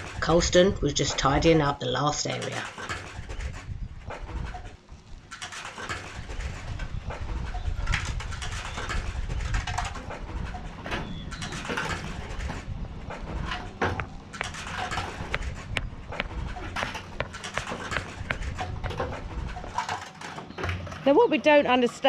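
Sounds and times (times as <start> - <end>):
paving stones clacking and scraping: 11.3 - 20.9.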